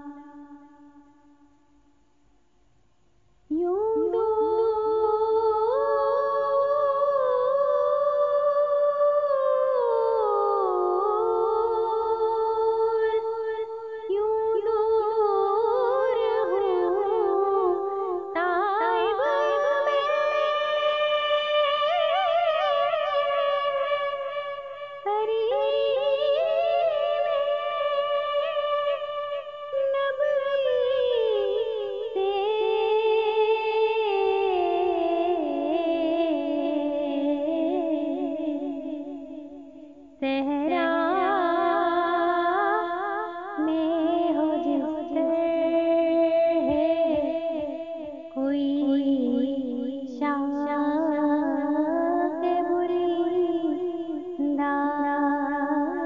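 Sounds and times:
woman singing devotional song: 0.0s - 2.0s, 3.5s - 56.0s.

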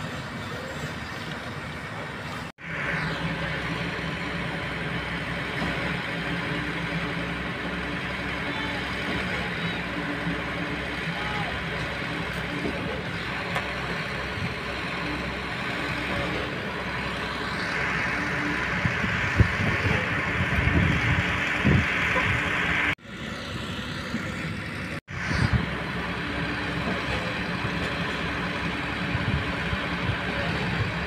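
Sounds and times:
excavator diesel engine running: 0.0s - 31.0s.

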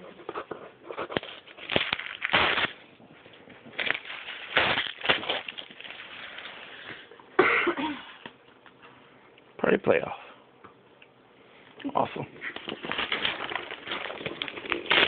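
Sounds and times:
paper crinkling: 0.3s - 7.1s, 12.4s - 15.0s
wrapping paper tearing: 1.0s - 2.8s, 3.7s - 6.8s, 12.5s - 15.0s.

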